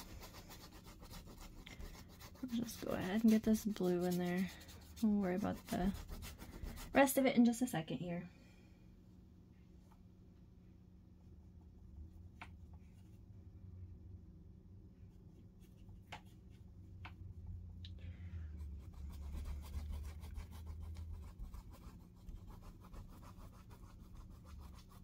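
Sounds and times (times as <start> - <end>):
paintbrush scratching on canvas: 0.0 - 7.2, 18.5 - 25.0
low steady hum: 0.0 - 25.0.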